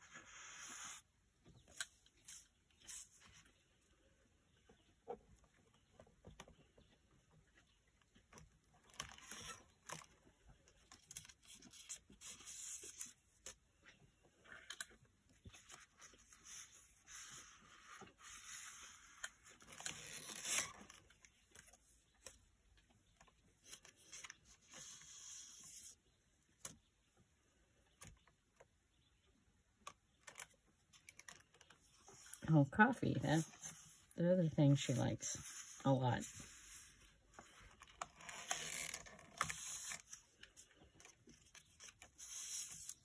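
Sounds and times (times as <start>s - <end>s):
journal pages turning: 14.5s - 22.4s, 34.9s - 43.0s
paper rustling and sliding: 34.8s - 43.0s.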